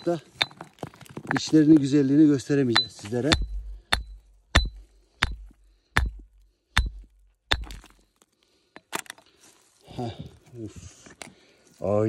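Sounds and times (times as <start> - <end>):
hammer striking rock: 0.0 - 1.5, 2.7 - 8.0.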